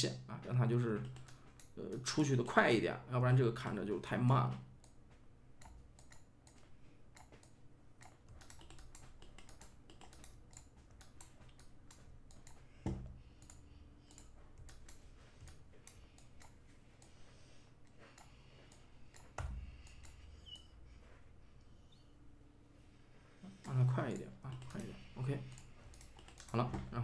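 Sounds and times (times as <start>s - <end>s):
keyboard and mouse clicking: 0.8s - 2.3s, 5.6s - 17.2s, 17.8s - 20.8s, 23.5s - 26.9s.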